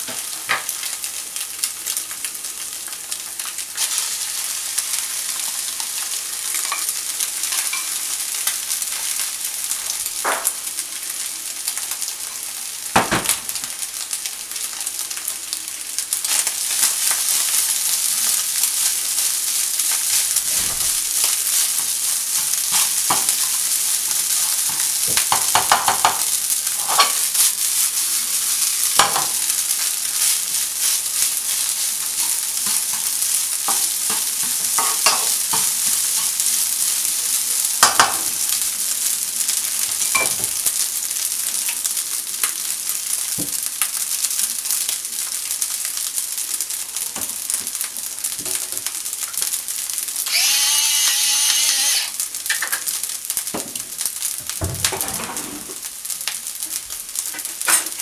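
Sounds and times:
rice and egg sizzling in a frying pan: 0.0s - 58.0s
spatula scraping and knocking pan: 20.1s - 27.2s, 30.2s - 36.4s.

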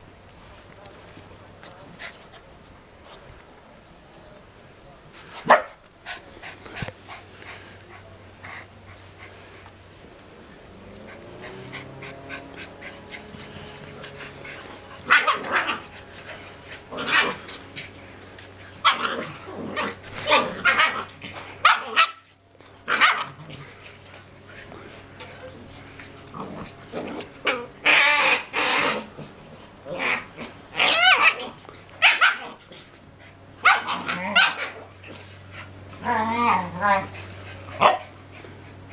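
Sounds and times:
dogs barking: 5.5s - 5.8s, 10.8s - 17.8s, 18.8s - 22.3s, 22.9s - 23.4s, 30.1s - 32.6s, 33.6s - 34.9s, 37.8s - 38.2s.

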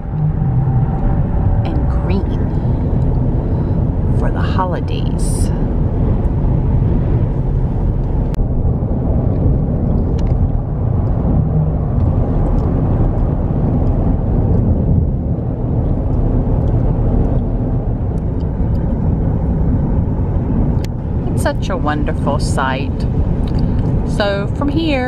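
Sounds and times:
car cabin road noise: 0.0s - 25.0s.

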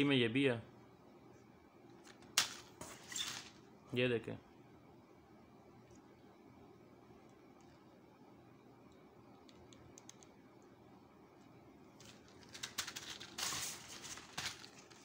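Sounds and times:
plastic packs rustling and clicking: 12.0s - 15.0s.

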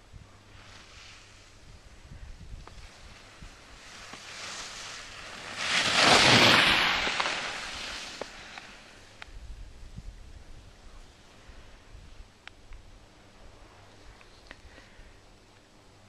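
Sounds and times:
skis scraping over packed snow: 0.5s - 9.2s.

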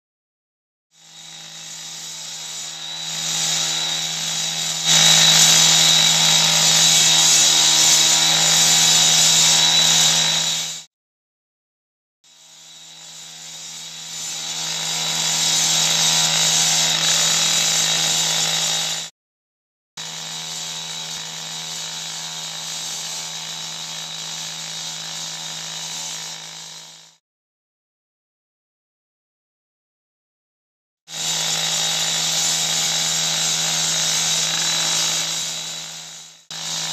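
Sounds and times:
chop saw whining: 1.0s - 10.9s, 12.3s - 19.1s, 31.1s - 36.9s.

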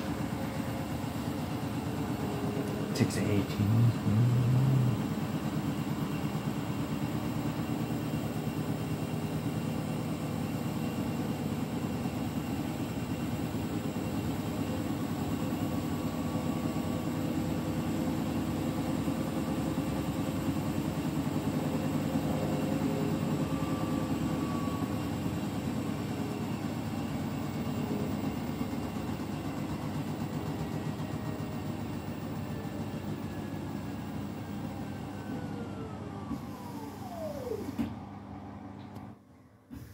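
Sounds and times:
falling whine: 0.0s - 5.8s, 34.2s - 38.0s
washing machine spinning: 0.0s - 39.9s.

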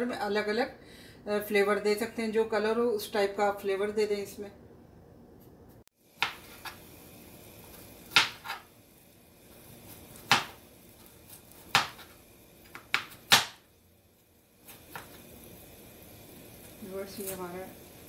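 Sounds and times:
knife chopping on plastic board: 8.1s - 8.6s, 10.2s - 10.6s, 11.7s - 12.1s, 12.7s - 13.6s.

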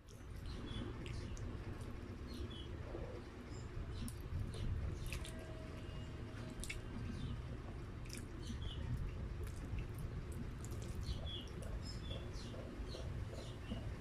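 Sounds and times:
steady low rumble: 0.0s - 14.0s
wet lip-smacking clicks: 6.6s - 6.9s.

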